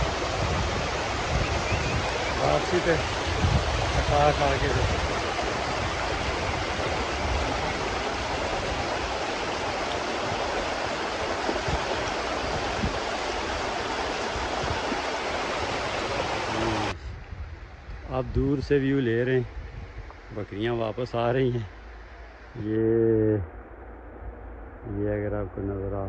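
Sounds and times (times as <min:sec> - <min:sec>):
stream rushing over stones: 0:00.0 - 0:17.0.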